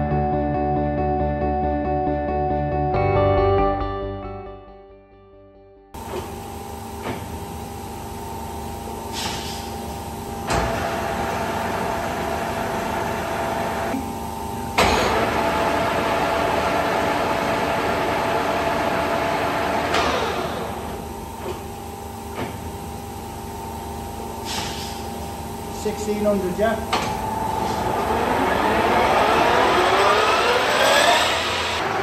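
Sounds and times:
lathe electric hum: 0:15.1 - 0:22.2, 0:25.0 - 0:32.0.

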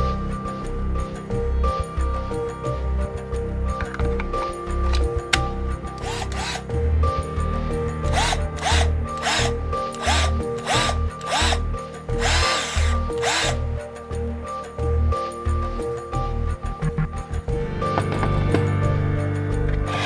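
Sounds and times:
polisher motor whining: 0:12.2 - 0:13.6.

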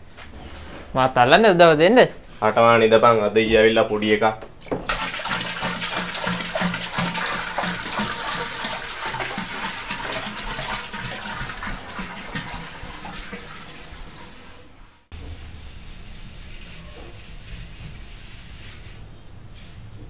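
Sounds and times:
water pouring into plastic barrel: 0:04.9 - 0:14.7.

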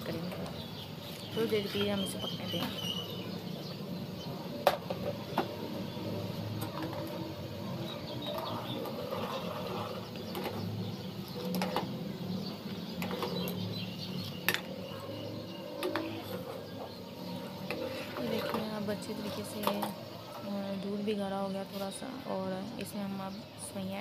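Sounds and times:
ladle stirring milk in pan: 0:08.2 - 0:10.7, 0:15.8 - 0:20.4.

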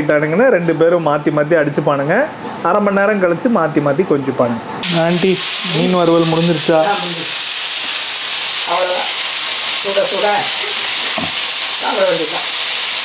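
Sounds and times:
fish sizzling in hot oil: 0:04.8 - 0:13.0.

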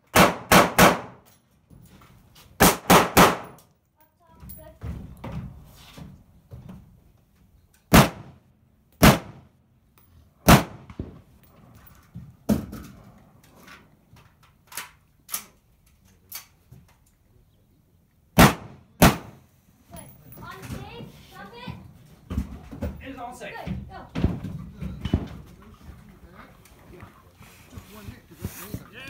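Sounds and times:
single gunshots: 0:00.1 - 0:01.2, 0:02.6 - 0:03.6, 0:07.9 - 0:08.4, 0:09.0 - 0:09.5, 0:10.4 - 0:10.9, 0:18.4 - 0:19.4.

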